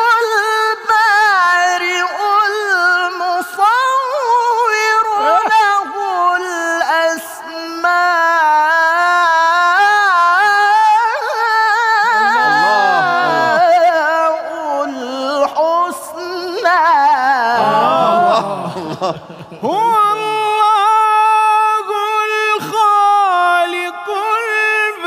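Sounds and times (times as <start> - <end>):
men calling out in appreciation: 5.2 - 5.8, 12.2 - 13.8, 17.6 - 19.0
man chanting long ornamented note: 11.8 - 14.2.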